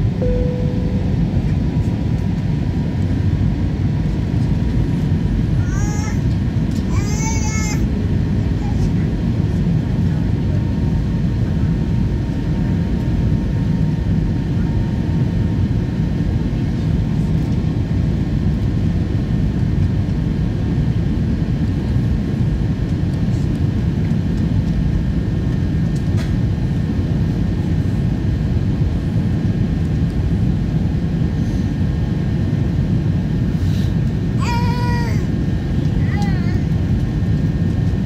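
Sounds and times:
faint steady whine: 0.0s - 5.8s
low rumble of engines and airflow: 0.0s - 38.0s.

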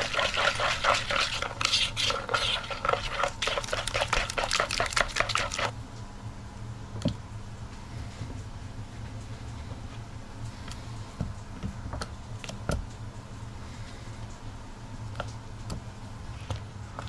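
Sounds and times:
potato slices tapping into batter: 0.0s - 5.7s
steady low hum: 0.0s - 17.0s.

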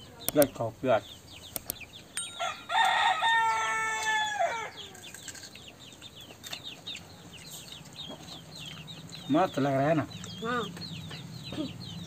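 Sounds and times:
small birds chirping: 0.0s - 12.0s
rooster crowing: 2.4s - 5.1s.

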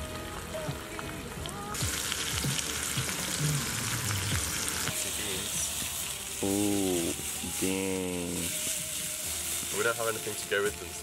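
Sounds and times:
sausages sizzling in a frying pan: 0.0s - 11.0s.

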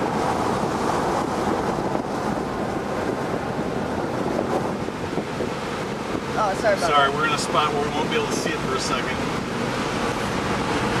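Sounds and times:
wind rushing: 0.0s - 6.9s
road noise inside car: 0.0s - 11.0s.

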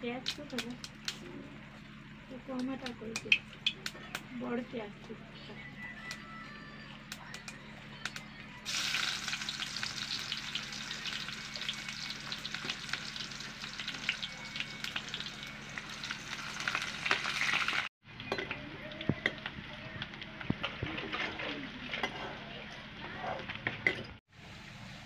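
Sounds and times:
food sizzling in hot oil: 8.7s - 17.9s.

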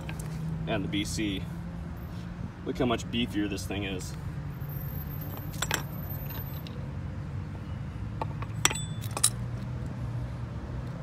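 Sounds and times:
metallic clinks on concrete: 5.0s - 6.8s, 8.2s - 9.6s.

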